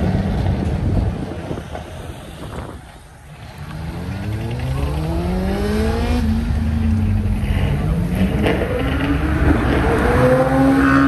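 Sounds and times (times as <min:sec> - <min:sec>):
sports car engine revving: 0:03.6 - 0:11.0.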